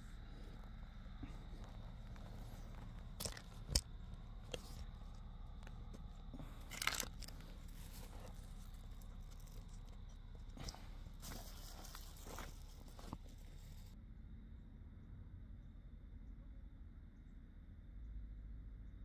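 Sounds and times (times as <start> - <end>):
crinkling rustle: 0.0 - 14.0
camping gear knocking: 1.2 - 9.8.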